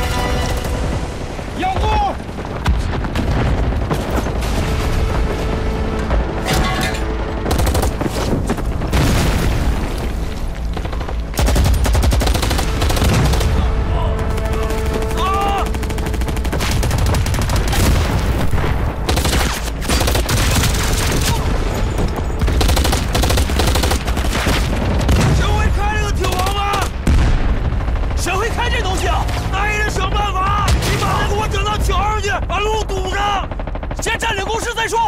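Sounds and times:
soundtrack music: 0.0s - 1.6s, 4.3s - 25.2s
explosions booming: 0.3s - 6.4s, 7.4s - 13.9s, 16.5s - 19.5s, 24.0s - 28.0s
machine-gun fire: 7.4s - 9.9s, 10.7s - 21.5s, 22.2s - 29.5s.

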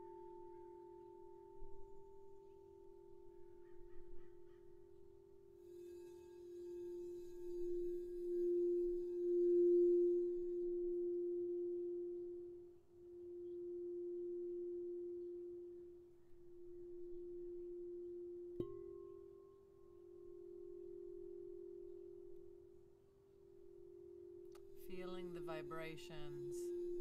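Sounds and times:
singing bowl tapped ringing: 0.0s - 12.2s, 17.4s - 22.5s
singing bowl humming: 0.0s - 27.0s.

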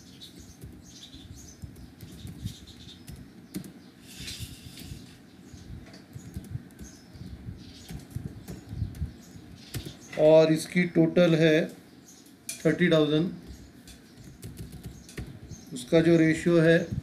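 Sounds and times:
computer keyboard keys clicking: 6.1s - 7.0s, 14.2s - 15.4s.

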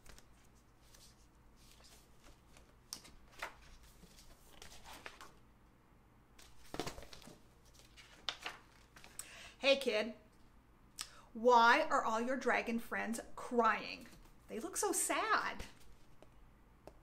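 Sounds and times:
book pages turning: 0.0s - 5.4s, 6.4s - 9.2s
paper rustling: 0.0s - 5.4s, 6.4s - 9.2s.

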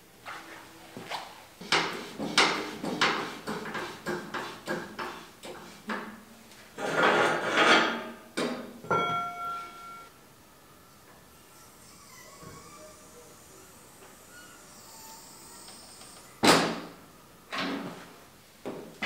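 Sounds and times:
short metallic ringing tone: 8.9s - 10.1s.

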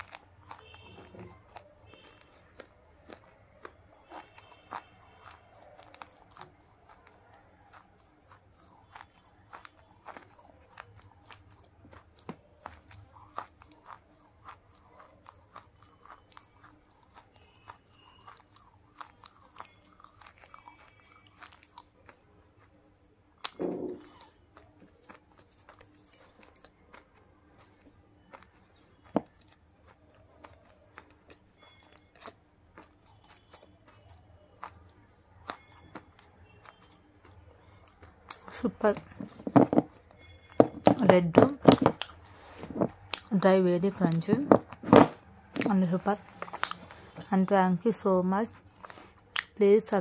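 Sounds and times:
crisp crunchy chewing: 0.0s - 49.6s.

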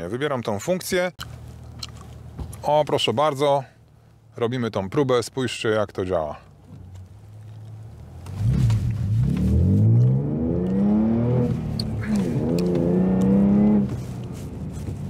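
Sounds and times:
car engine accelerating hard: 8.2s - 15.0s.

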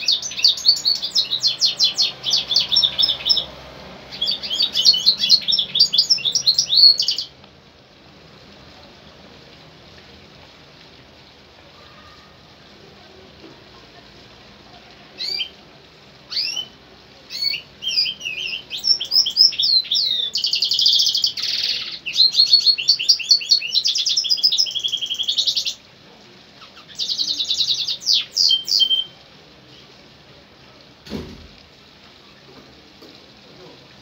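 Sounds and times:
finch singing trills: 0.0s - 3.5s, 4.1s - 7.3s, 16.3s - 25.8s.

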